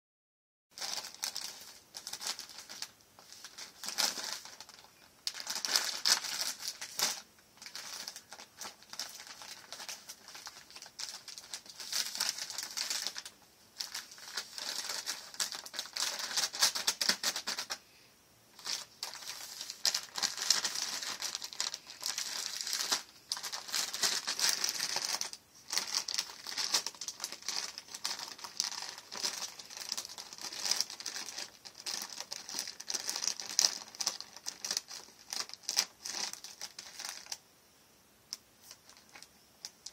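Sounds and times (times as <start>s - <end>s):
plastic bag crinkling: 0.8s - 17.8s, 18.6s - 37.4s, 38.6s - 39.9s.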